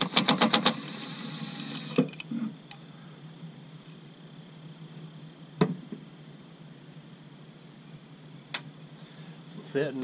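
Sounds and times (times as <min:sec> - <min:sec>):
cordless power tool spinning: 0:00.0 - 0:02.0.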